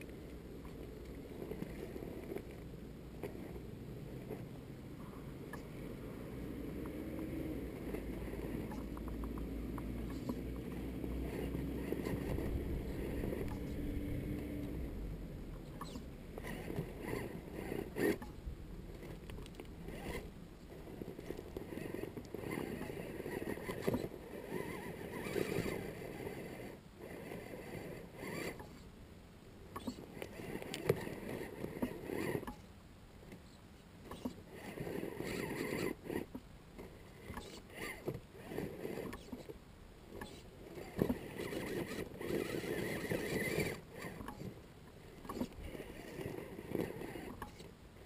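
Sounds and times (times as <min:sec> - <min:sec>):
electric motor and gearbox whining: 0:06.2 - 0:28.8, 0:29.7 - 0:32.6, 0:34.1 - 0:39.5, 0:40.1 - 0:44.5, 0:45.2 - 0:47.7.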